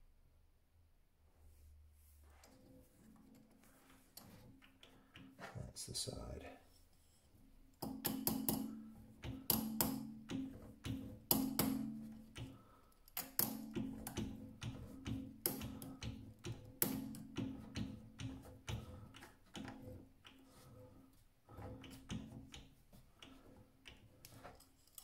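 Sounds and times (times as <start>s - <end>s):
hammer taps ringing on metal: 7.8s - 12.5s.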